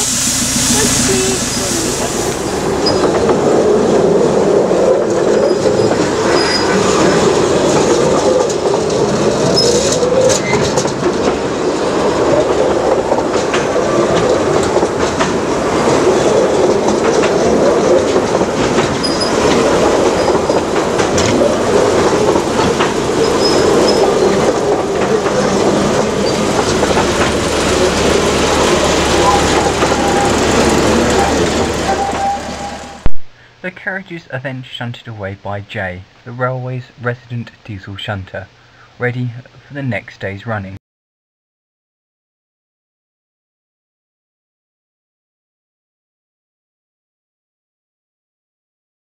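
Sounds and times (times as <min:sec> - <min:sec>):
carriage wheels rumbling on rail: 0:00.0 - 0:33.1.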